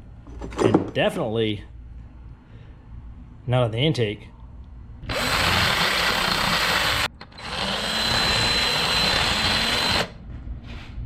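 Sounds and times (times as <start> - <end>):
power tool grinding whine: 5.1 - 10.2.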